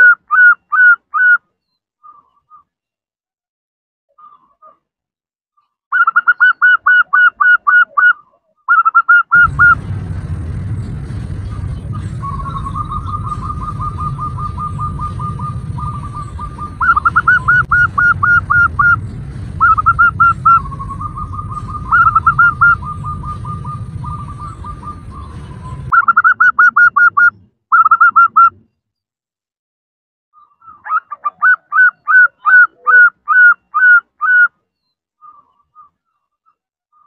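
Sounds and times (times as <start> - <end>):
low background rumble: 9.4 - 27.0
dove cooing: 12.7 - 19.0, 19.6 - 25.4.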